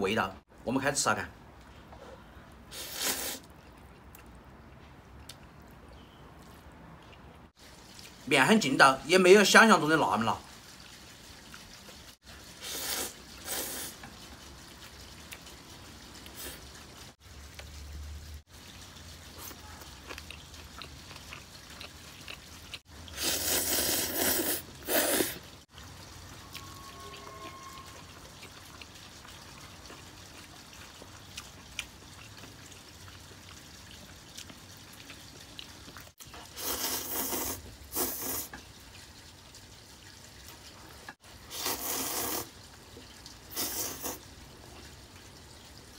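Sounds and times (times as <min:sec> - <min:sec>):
person slurping noodles: 0:02.7 - 0:03.5, 0:12.6 - 0:14.0, 0:23.2 - 0:25.5, 0:36.5 - 0:38.6, 0:41.5 - 0:42.6, 0:43.5 - 0:44.2
wet chewing: 0:02.8 - 0:08.2, 0:19.3 - 0:38.6.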